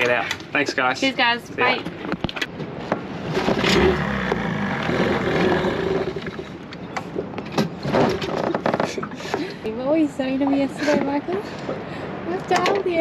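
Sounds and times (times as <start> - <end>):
outboard motor running unevenly: 3.1 - 7.4.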